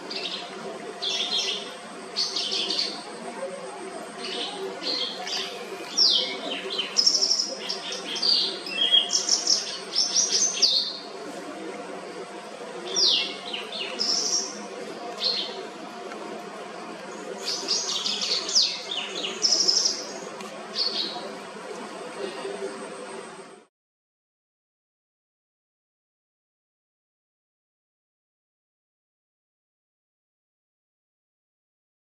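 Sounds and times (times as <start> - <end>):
bird chirps and trills: 0.0 - 11.2, 12.2 - 15.8, 17.1 - 21.4
steady low hum: 0.0 - 23.7.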